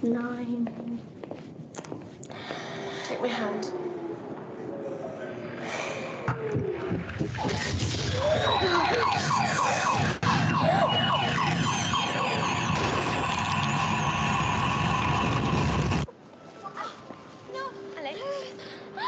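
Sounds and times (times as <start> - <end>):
siren-like wailing tones: 6.4 - 16.1.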